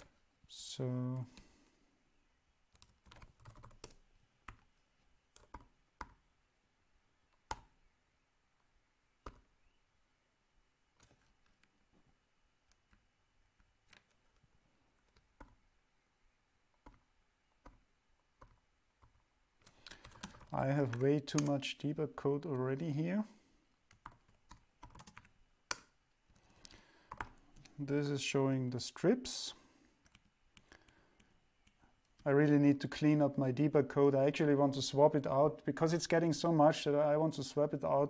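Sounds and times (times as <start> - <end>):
computer keyboard typing: 2.7 - 4.7, 5.3 - 6.2, 9.2 - 9.6, 11.0 - 11.6, 15.0 - 15.6, 16.8 - 21.6, 23.9 - 25.9, 27.0 - 27.7.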